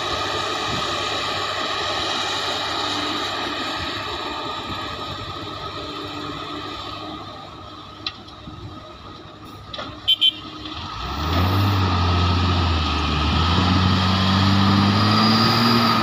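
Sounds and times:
heavy diesel engine revving: 10.7 - 16.0.

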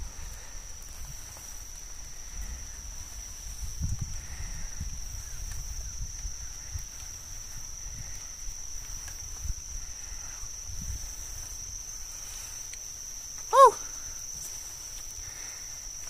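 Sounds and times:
low wind rumble on microphone: 0.0 - 12.7
high-pitched insect trill: 0.0 - 16.0.

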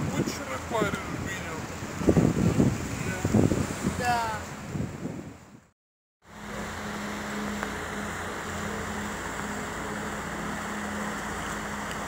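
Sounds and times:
wind and water rushing: 0.0 - 12.0
boat engine droning: 6.2 - 12.0.

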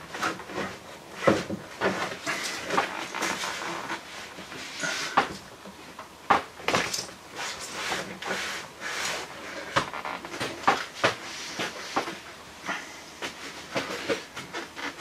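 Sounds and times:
rubber rubbing and scraping: 0.0 - 5.4, 6.7 - 12.4.

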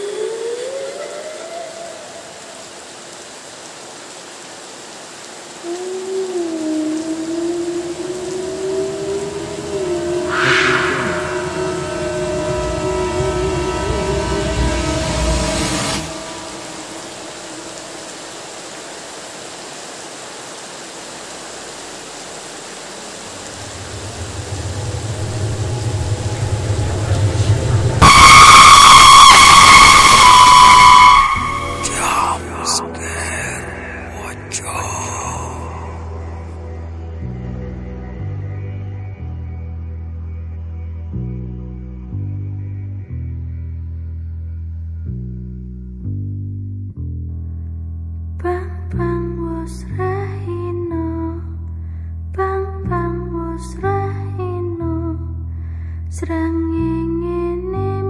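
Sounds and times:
long wavering tone: 0.0 - 2.5, 5.6 - 18.2, 23.5 - 33.5
steady rain falling: 0.0 - 38.4
low rumbling drone: 6.6 - 18.2, 23.4 - 55.8
high-pitched jumpscare sting: 9.5 - 17.7.

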